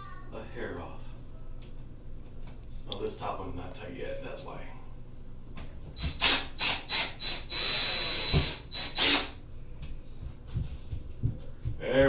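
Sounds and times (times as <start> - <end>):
cordless drill whining: 6.0 - 9.4.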